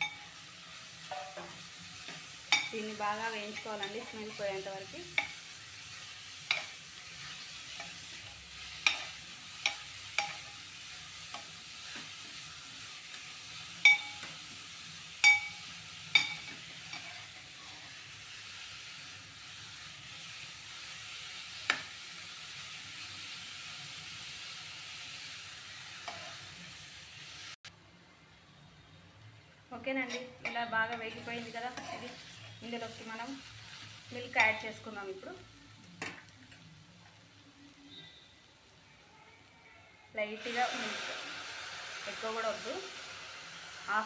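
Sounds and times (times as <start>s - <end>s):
carrot sizzling in a pot: 0.0s - 27.7s, 29.2s - 44.0s
spoon clinking on metal pot: 2.5s - 2.8s, 13.8s - 14.3s, 15.2s - 17.2s.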